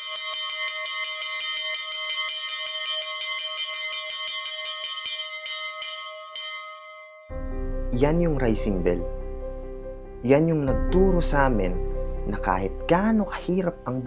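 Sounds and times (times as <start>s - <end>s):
small metal bell ringing rapidly: 0.0s - 7.1s.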